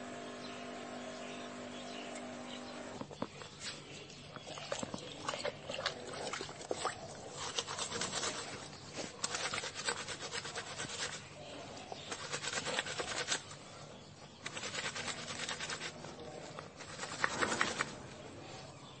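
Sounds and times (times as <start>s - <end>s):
hands scrubbing wet cloth in water: 3.4s - 18.3s.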